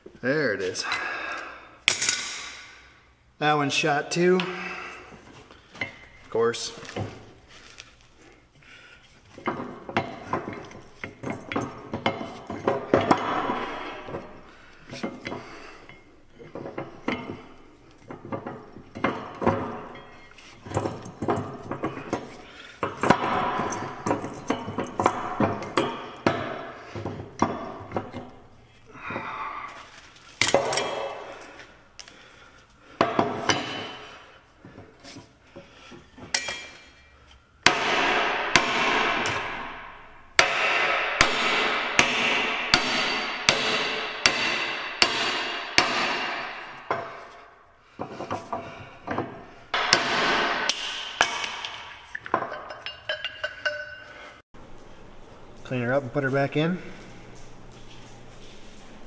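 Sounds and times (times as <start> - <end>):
steel parts clanking in a vise: 36.2 - 37.4, 48.0 - 54.3
hammer striking metal ringing: 37.7 - 47.1, 49.8 - 54.1.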